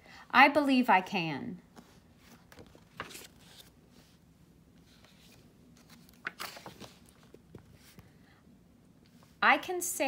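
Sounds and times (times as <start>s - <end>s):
book pages turning: 1.7s - 4.2s, 4.8s - 8.0s
paper rustling: 1.8s - 4.2s, 4.8s - 8.0s.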